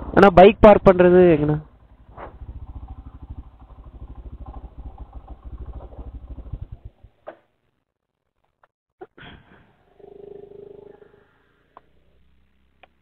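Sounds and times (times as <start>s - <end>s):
motorcycle engine ticking over: 0.8s - 7.4s.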